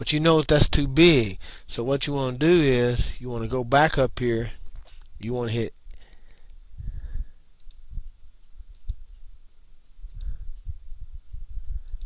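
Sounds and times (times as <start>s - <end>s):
computer mouse clicking: 7.5s - 9.2s, 10.1s - 10.4s.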